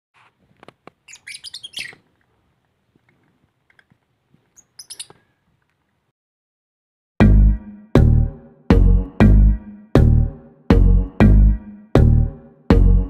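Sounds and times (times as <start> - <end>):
lovebird chirping: 1.1 - 2.0, 4.6 - 5.2.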